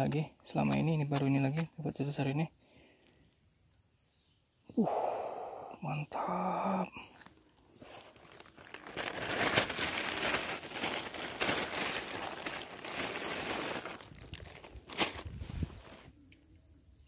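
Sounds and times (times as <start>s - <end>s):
plastic bag crinkling: 7.2s - 16.1s.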